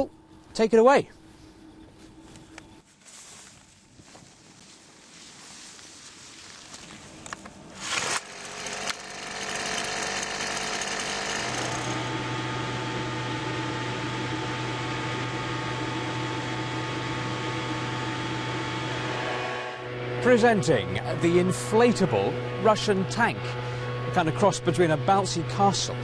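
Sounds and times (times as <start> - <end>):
small petrol engine running: 7.8 - 20.1.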